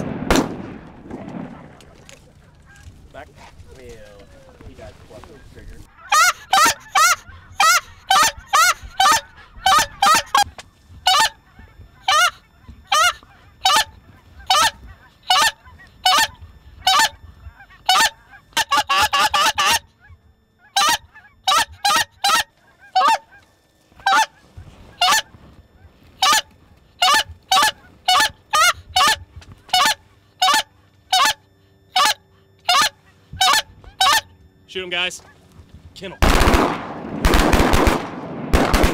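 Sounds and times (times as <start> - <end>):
goose call honks: 5.3 - 34.3
rapid goose call clucks: 5.3 - 34.3.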